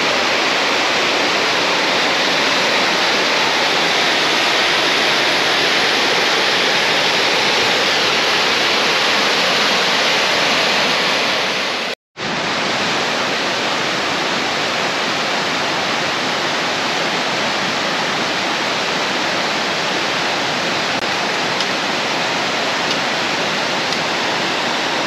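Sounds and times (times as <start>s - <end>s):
waterfall rushing: 0.0s - 25.0s.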